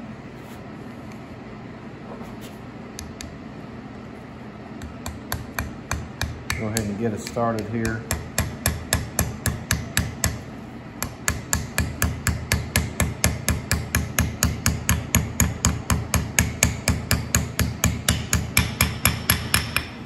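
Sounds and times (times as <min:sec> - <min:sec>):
hammer tapping: 0:04.8 - 0:20.0.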